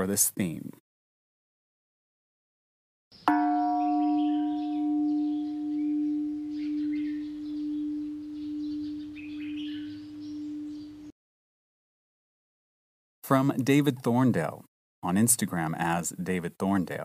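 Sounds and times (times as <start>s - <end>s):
faint birds chirping: 3.1s - 11.2s
singing bowl ringing: 3.3s - 11.1s.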